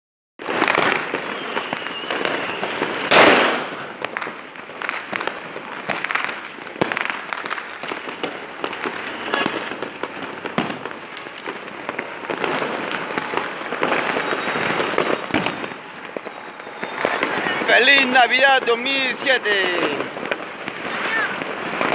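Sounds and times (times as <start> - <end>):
fireworks crackling and banging: 0.4 - 21.9
loud blast: 0.6 - 3.9.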